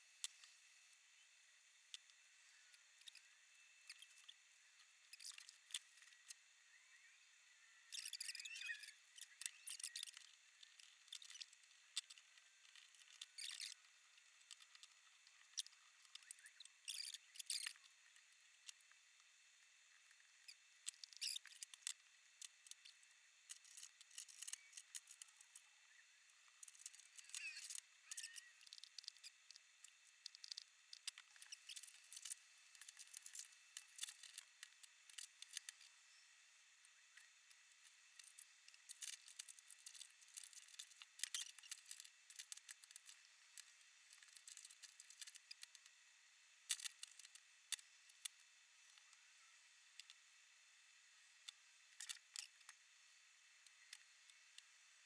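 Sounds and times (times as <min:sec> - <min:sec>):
plastic parts clicking and scraping: 0:01.9 - 0:06.4, 0:07.9 - 0:19.0, 0:20.0 - 0:25.7, 0:26.4 - 0:36.0, 0:36.9 - 0:46.0, 0:46.6 - 0:49.2, 0:51.4 - 0:52.8.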